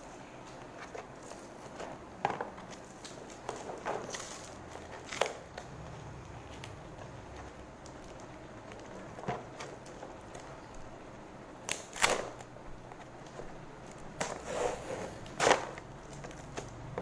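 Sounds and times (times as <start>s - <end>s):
packing tape ripping off cardboard: 2.6s - 5.7s, 11.6s - 16.8s.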